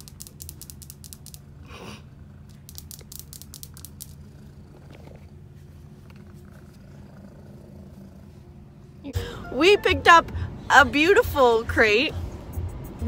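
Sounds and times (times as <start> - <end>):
low hum: 0.0 - 13.0
light clicks and crackles: 2.5 - 4.2.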